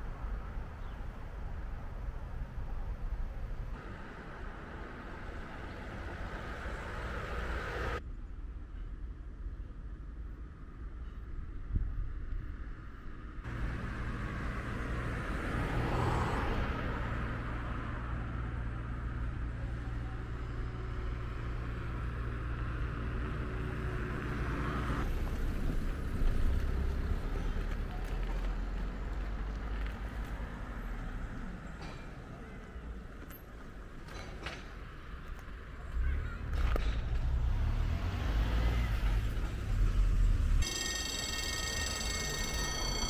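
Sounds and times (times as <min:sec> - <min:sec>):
car passing: 0:03.7 - 0:08.0, 0:13.4 - 0:31.7, 0:35.9 - 0:40.6
wind rumble on microphone: 0:10.4 - 0:13.4.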